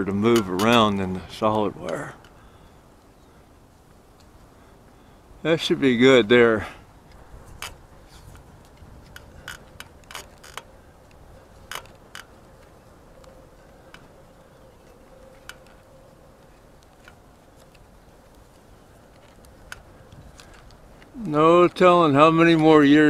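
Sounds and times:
tape clicks and crackles: 7.0s - 21.4s.

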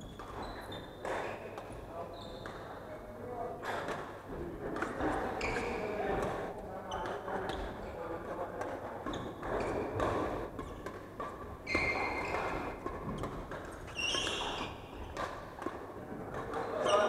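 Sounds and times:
shoes squeaking on wooden floor: 0.0s - 1.4s, 2.1s - 2.7s, 5.3s - 6.0s, 11.6s - 12.8s, 13.9s - 14.9s
rackets hitting shuttlecock: 8.6s - 17.0s.

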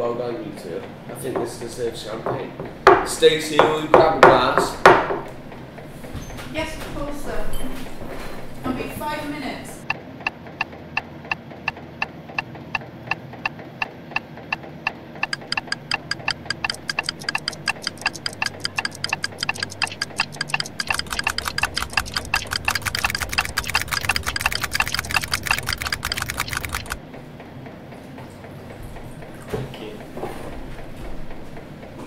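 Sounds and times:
clock ticking: 10.6s - 27.0s.

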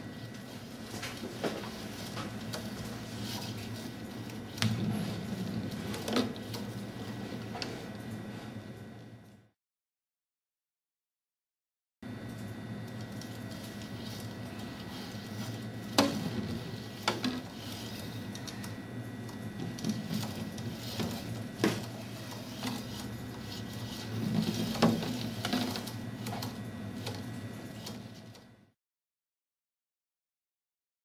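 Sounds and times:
robot motors whirring: 0.0s - 8.0s, 12.9s - 28.6s.

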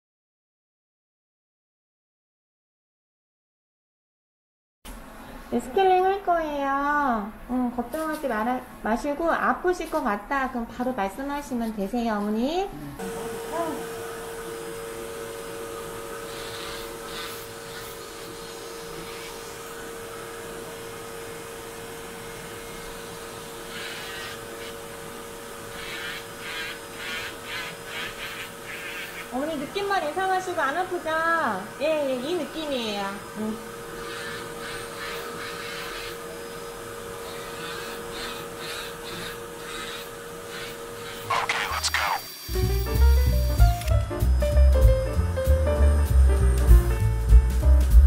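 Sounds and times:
nail drill whining: 13.0s - 30.0s, 32.3s - 44.5s
bit grinding toenail: 25.7s - 29.3s, 34.0s - 36.2s, 37.2s - 42.3s.

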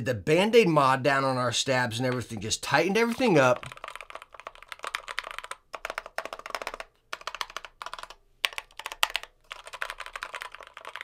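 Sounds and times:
mechanical keyboard typing: 3.2s - 11.0s.

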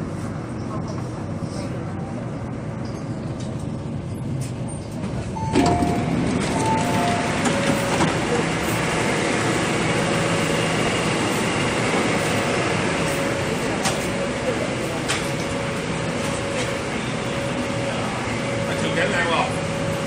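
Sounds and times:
train arriving at platform: 0.0s - 20.0s
short high tones: 5.4s - 7.9s.

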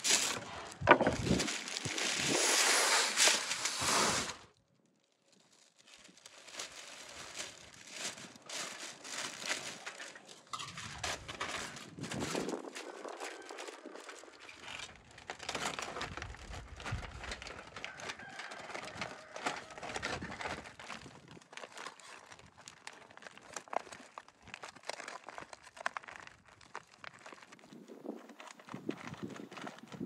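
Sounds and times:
aluminium foil crinkling: 0.0s - 30.0s.

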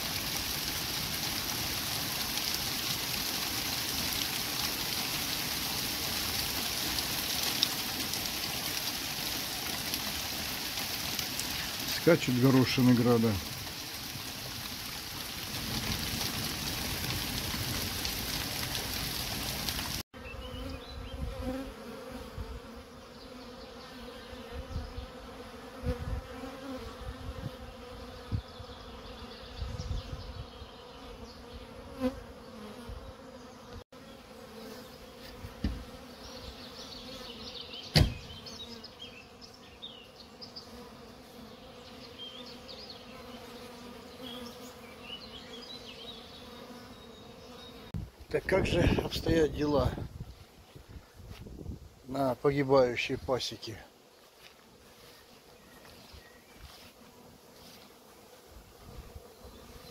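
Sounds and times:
hail falling: 0.0s - 20.0s
bees buzzing: 0.0s - 51.2s, 54.0s - 59.9s.

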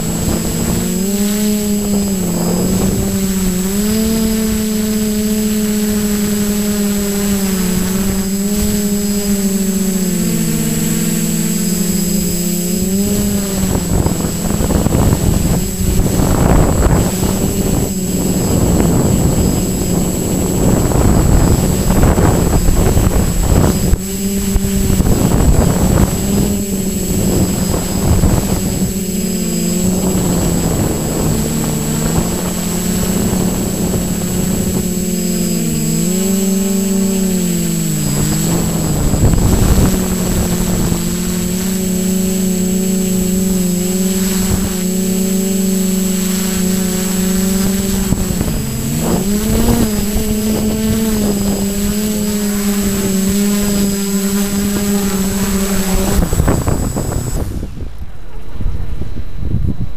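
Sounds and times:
drone propellers droning: 0.0s - 59.9s
wind buffeting microphone: 0.0s - 59.9s.

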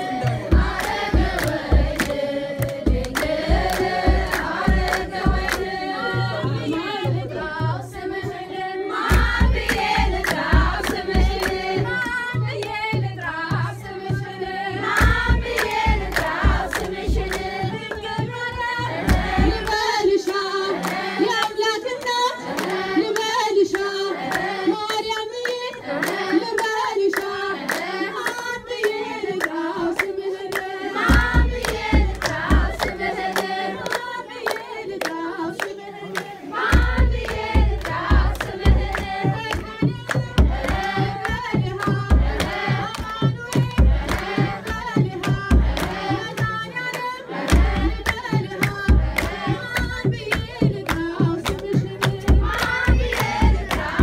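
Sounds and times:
hand clapping: 0.0s - 7.0s, 9.0s - 54.0s
deep drum beats: 0.0s - 20.4s, 30.9s - 33.8s, 36.6s - 46.6s, 47.5s - 54.0s
women singing a hymn: 0.0s - 54.0s.

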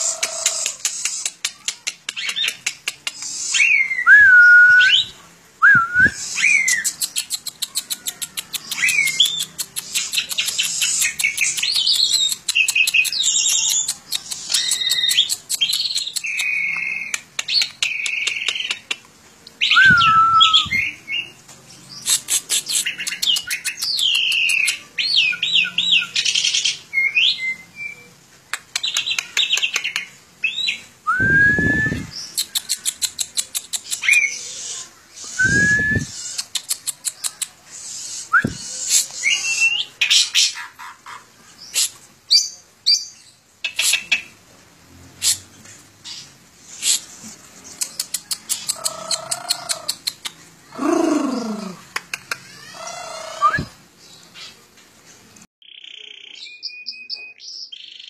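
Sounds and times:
starling singing: 0.0s - 18.8s, 28.8s - 44.4s, 45.2s - 52.0s.

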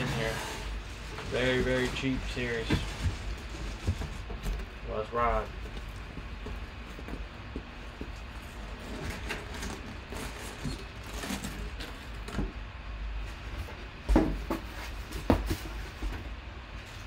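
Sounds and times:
rustles and clicks: 0.0s - 12.5s.

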